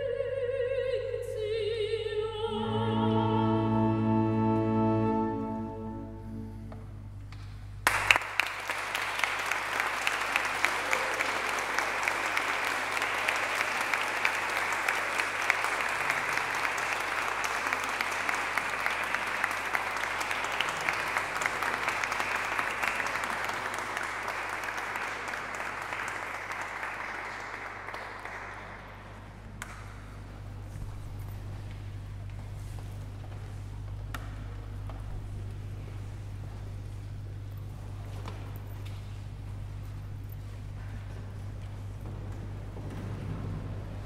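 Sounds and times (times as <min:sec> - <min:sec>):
audience applause: 0:07.8 - 0:30.5.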